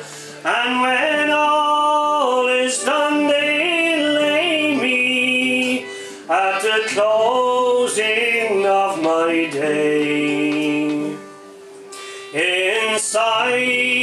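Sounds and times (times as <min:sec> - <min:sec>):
man breathing: 0:00.0 - 0:00.4, 0:05.8 - 0:06.3, 0:11.9 - 0:12.4
man singing unaccompanied: 0:00.0 - 0:11.4, 0:12.2 - 0:14.0.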